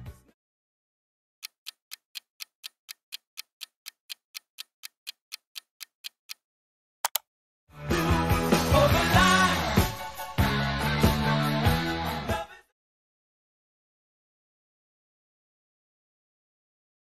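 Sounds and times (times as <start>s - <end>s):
clock-like timer ticking: 1.4s - 6.4s
rock music: 7.8s - 12.5s.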